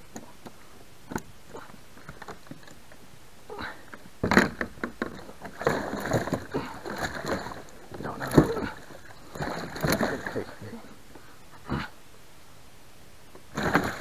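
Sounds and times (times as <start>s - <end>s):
water splashes: 5.3s - 11.0s, 13.5s - 14.0s
fish thrashing in a landing net: 5.5s - 10.6s, 13.5s - 14.0s.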